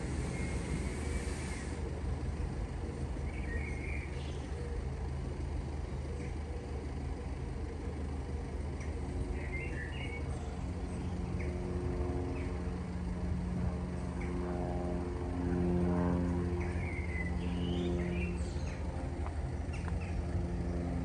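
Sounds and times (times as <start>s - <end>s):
engine humming: 0.0s - 21.0s
bird chirps: 3.2s - 4.8s, 8.8s - 11.6s, 16.6s - 19.0s.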